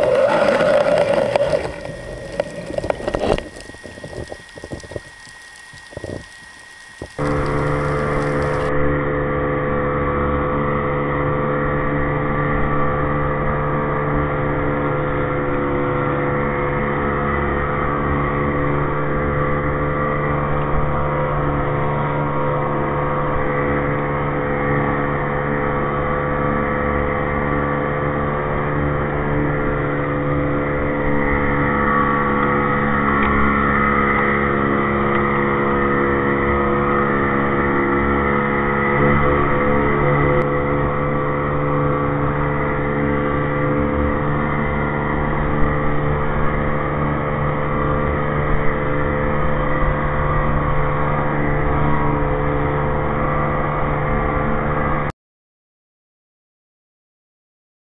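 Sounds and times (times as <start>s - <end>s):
outboard engine running: 0.0s - 55.1s.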